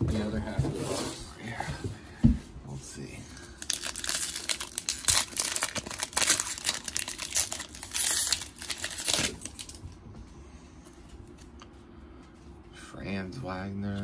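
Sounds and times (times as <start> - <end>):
foil wrapper crinkling: 3.4 - 9.8.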